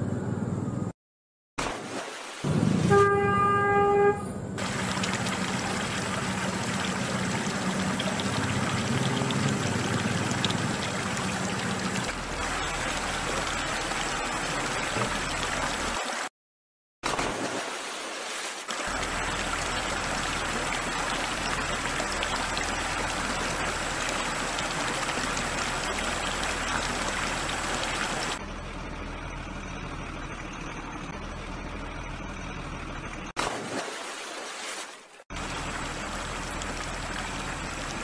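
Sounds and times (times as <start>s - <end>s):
shallow water rushing and sloshing: 1.6s - 3.1s, 4.6s - 16.3s, 17.1s - 28.4s, 33.4s - 38.0s.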